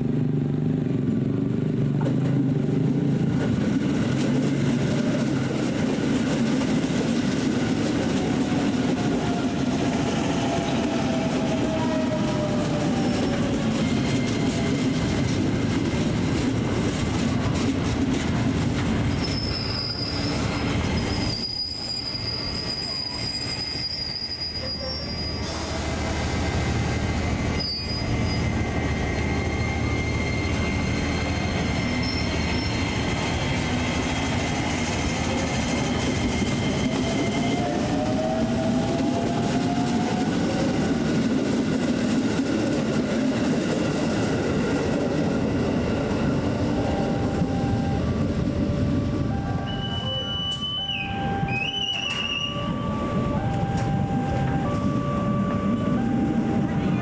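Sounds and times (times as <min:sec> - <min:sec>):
train wheels rumbling on rail: 0:00.0 - 0:57.0
wheels squealing: 0:19.0 - 0:25.8, 0:26.4 - 0:39.0, 0:43.8 - 0:57.0.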